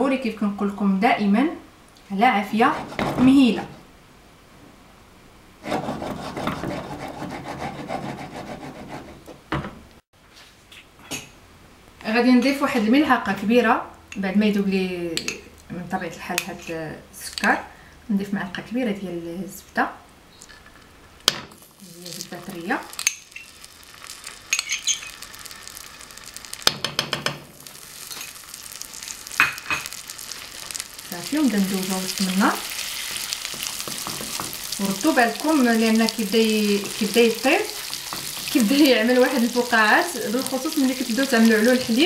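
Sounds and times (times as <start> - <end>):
frying pan scraping on burner: 2.6 - 3.6, 5.6 - 9.4, 22.1 - 42.0
spoon clinking and scraping a pan: 23.0 - 23.7, 24.4 - 25.3.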